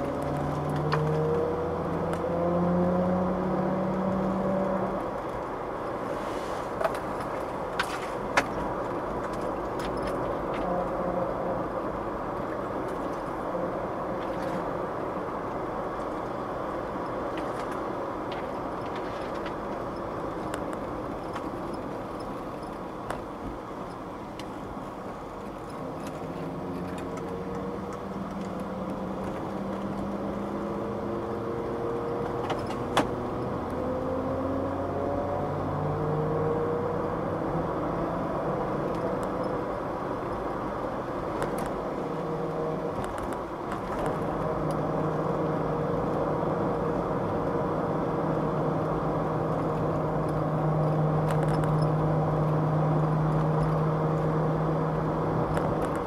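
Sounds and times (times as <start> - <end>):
car engine: 0.0 - 56.0.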